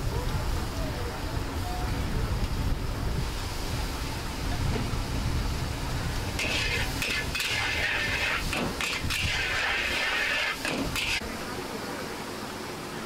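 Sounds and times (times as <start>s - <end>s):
gas burner rumble: 0.0s - 11.3s
noodles sizzling in a wok: 5.4s - 11.2s
metal spatula scraping a wok: 6.4s - 11.2s.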